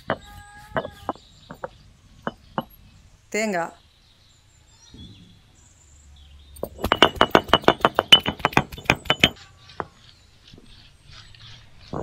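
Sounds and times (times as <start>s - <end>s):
sharp knocking strikes with clink: 6.6s - 9.4s.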